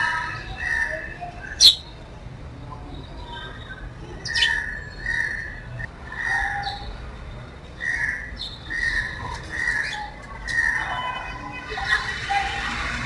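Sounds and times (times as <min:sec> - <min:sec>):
sparrows chirping: 0:00.0 - 0:02.0, 0:02.7 - 0:07.1, 0:07.7 - 0:11.0.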